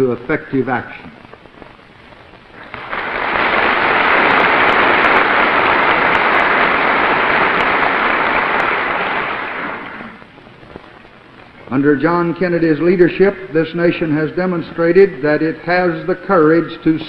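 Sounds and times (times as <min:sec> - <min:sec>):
large audience applauding: 0:02.6 - 0:10.2.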